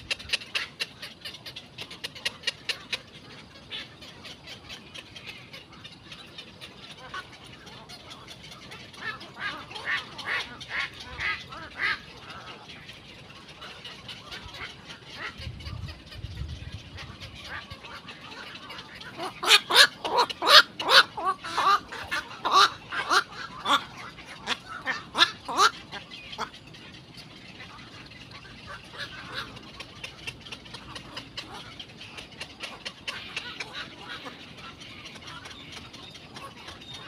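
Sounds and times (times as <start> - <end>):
heron hoarse calls: 0.0 - 12.7, 16.9 - 26.7.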